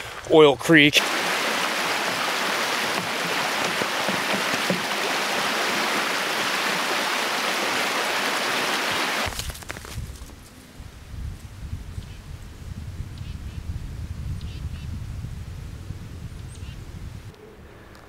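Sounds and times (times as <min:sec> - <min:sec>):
creek water rushing: 0:01.0 - 0:09.3.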